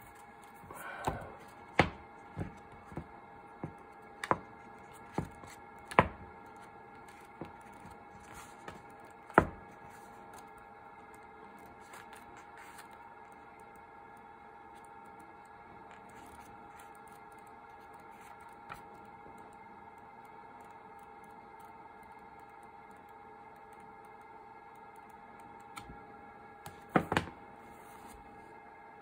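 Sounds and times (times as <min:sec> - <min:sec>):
book cover rustle: 0:06.6 - 0:10.5, 0:11.6 - 0:13.0, 0:15.9 - 0:18.9
book pages snapping and flapping: 0:11.6 - 0:13.4.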